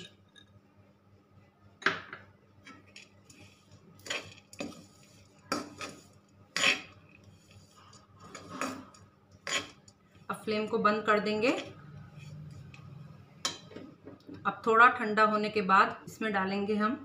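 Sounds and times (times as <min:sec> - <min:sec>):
spatula scraping and knocking on pan: 0:02.7 - 0:09.9.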